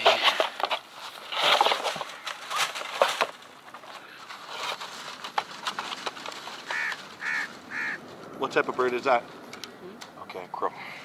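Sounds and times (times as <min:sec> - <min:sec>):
crow cawing: 0:06.7 - 0:08.0.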